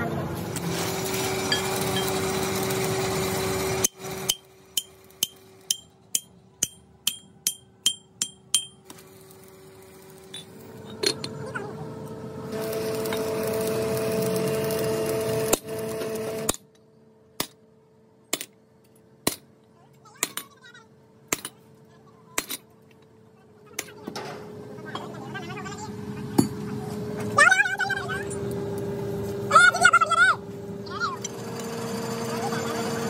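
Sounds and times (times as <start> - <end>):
steady engine-like hum: 0.0 - 14.8, 16.4 - 33.0
hammer striking steel: 3.8 - 8.9.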